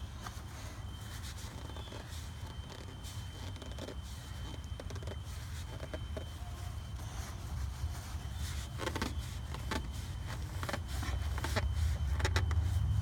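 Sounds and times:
cloth rustling: 0.0 - 13.0
steady low rumble: 6.1 - 13.0.

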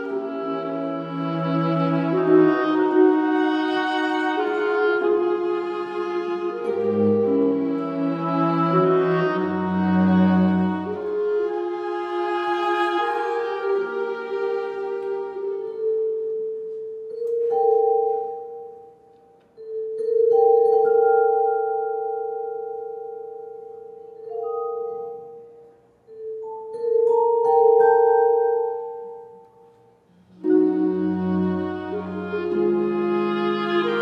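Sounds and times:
chamber ensemble long held notes: 0.0 - 18.7, 30.1 - 34.0.

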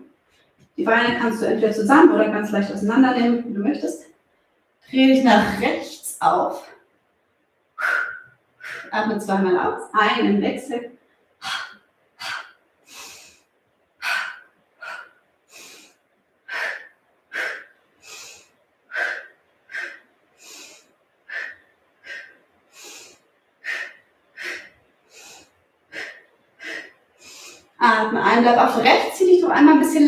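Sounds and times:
woman breathing rhythmically: 7.6 - 9.0, 11.0 - 27.8.

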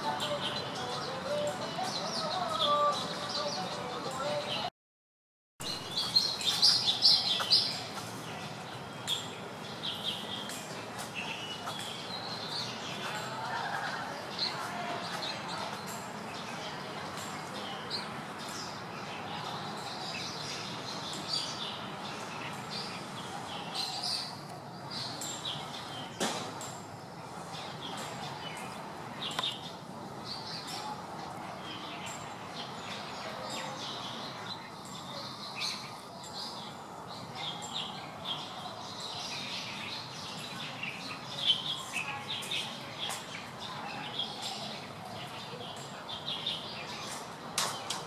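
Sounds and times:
steady outdoor hiss: 0.0 - 4.7, 5.6 - 48.0
small birds chirping: 5.6 - 48.0.

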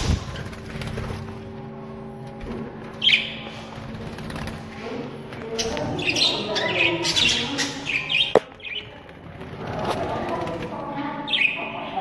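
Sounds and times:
budgerigars chirping: 3.0 - 3.7, 5.5 - 8.9.

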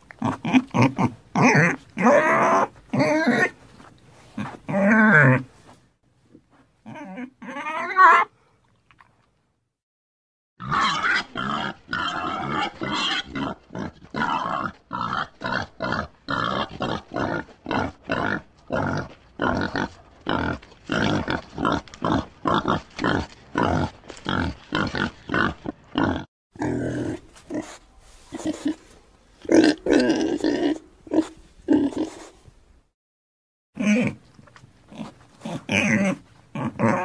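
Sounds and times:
pig grunting: 10.6 - 28.8, 33.8 - 34.2, 34.9 - 37.0.

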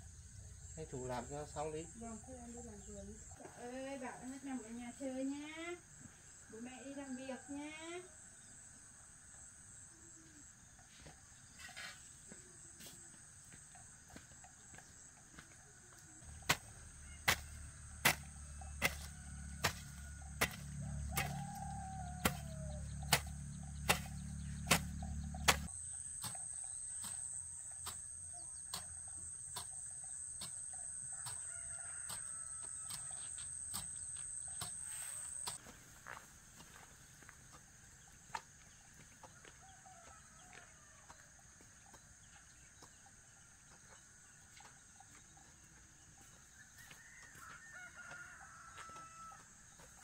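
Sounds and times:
chickens clucking and crowing: 16.4 - 28.0, 28.7 - 35.6, 46.2 - 50.0
low hum: 17.7 - 26.1.

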